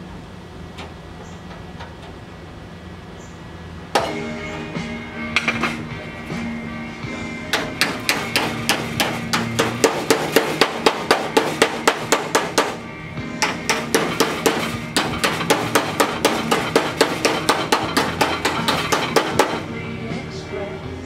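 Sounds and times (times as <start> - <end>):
hammer striking sheet metal: 7.5 - 12.8, 13.4 - 19.7.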